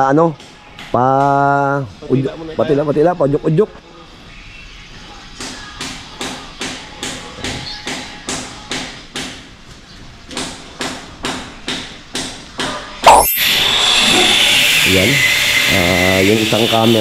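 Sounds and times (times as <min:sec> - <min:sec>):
hammer blows: 0:10.3 - 0:17.0.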